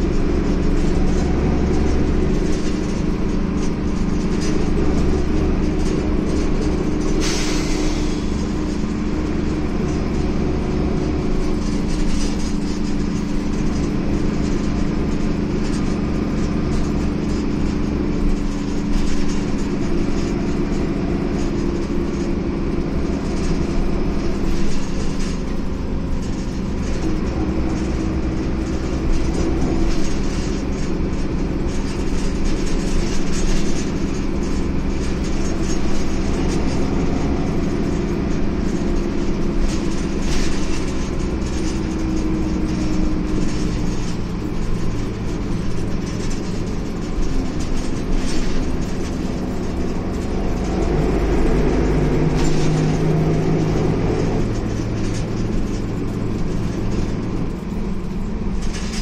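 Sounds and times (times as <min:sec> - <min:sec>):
diesel engine droning: 0:00.0 - 0:59.0
road rumble: 0:00.0 - 0:59.0.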